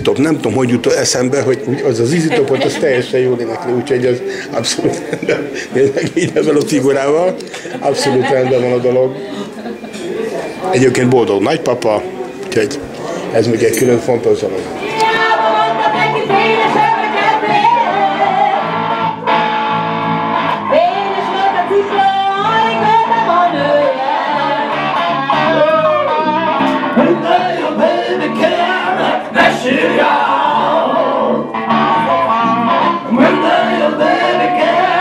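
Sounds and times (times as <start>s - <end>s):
electric guitar: 14.8s - 35.0s
bass guitar: 16.1s - 27.6s, 30.6s - 35.0s.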